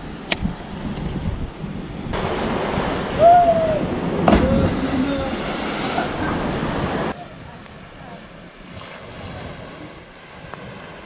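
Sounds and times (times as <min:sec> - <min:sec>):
wind: 0:00.0 - 0:11.0
sea surf: 0:01.8 - 0:11.0
sharp thump into water: 0:04.2 - 0:05.0.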